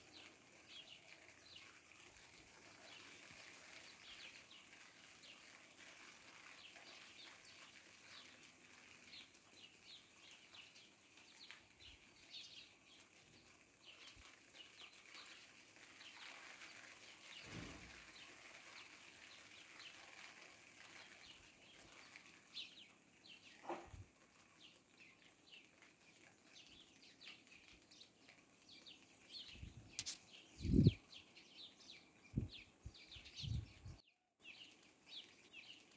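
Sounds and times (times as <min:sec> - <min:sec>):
rain hiss: 0:00.0 - 0:23.5
small birds chirping: 0:00.0 - 0:35.9.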